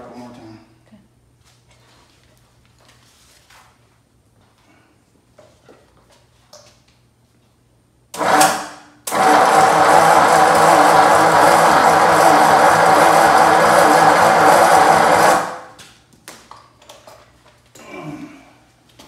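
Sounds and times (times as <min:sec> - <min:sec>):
starter motor cranking engine: 0:08.2 - 0:15.7.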